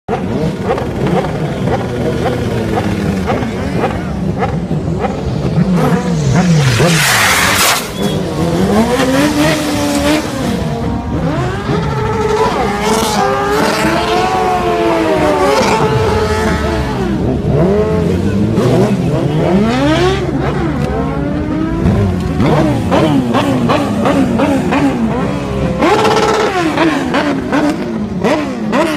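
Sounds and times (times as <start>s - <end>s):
motorcycle engines revving: 0.1s - 28.9s
tyre screech: 6.1s - 8.9s.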